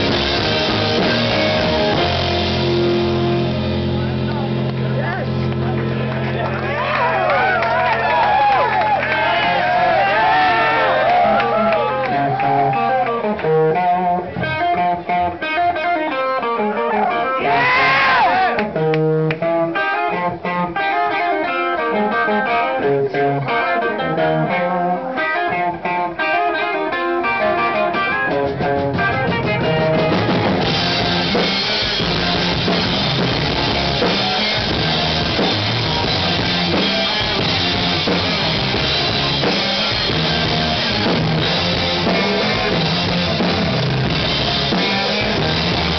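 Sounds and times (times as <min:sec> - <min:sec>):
drum kit and cymbals: 0:00.0 - 0:05.3, 0:28.0 - 0:45.9
bass guitar: 0:00.0 - 0:45.9
electric guitars: 0:00.0 - 0:45.9.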